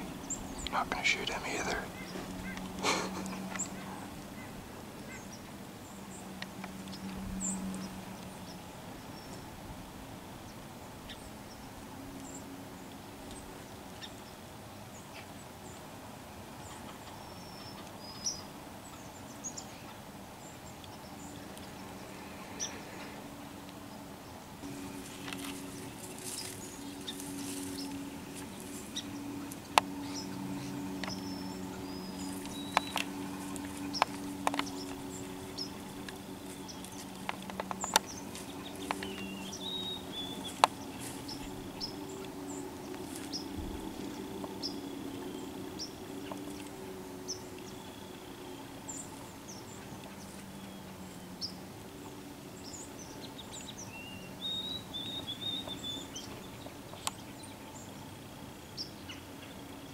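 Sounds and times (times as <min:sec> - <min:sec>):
small birds chirping: 0:00.0 - 0:09.6, 0:10.4 - 0:59.9
low steady hum: 0:00.0 - 0:59.9
deer stepping through dry grass: 0:24.7 - 0:30.3, 0:32.0 - 0:42.0.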